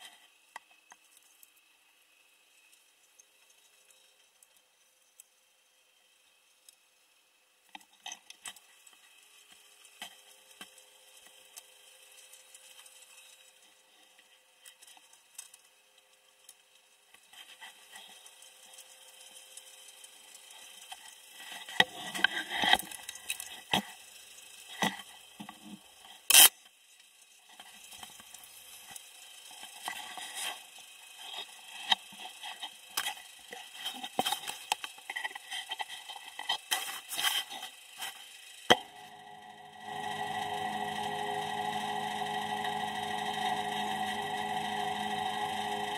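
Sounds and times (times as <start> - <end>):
faint steady tone: 38.7 - 45.9.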